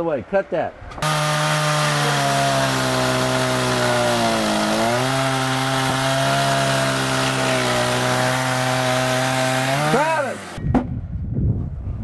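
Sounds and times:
pole saw cutting log: 1.0s - 10.6s.

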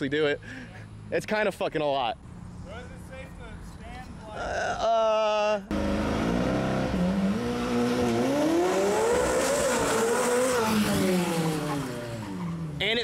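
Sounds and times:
car passing: 5.7s - 12.8s
sports car engine revving: 5.7s - 12.8s.

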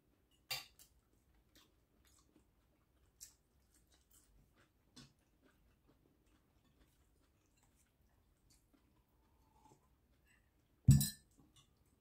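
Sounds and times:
faint chewing: 0.0s - 12.0s.

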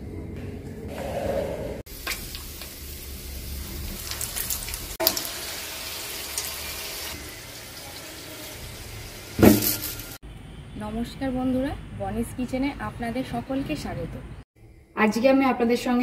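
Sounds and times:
oil sizzling: 1.9s - 10.2s.

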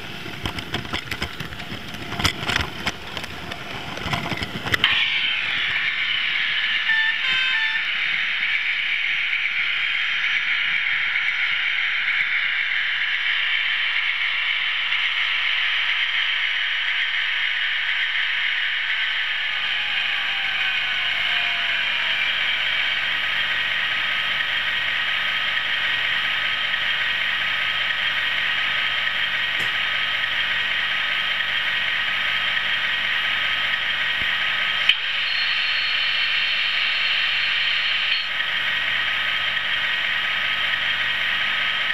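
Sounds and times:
model train motors whirring: 0.0s - 41.9s.

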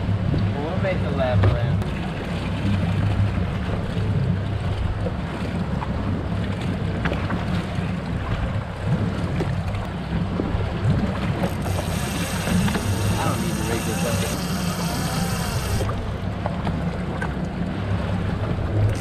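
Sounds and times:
waves lapping against boat hull: 0.0s - 19.0s
faint clicks: 11.4s - 16.6s.

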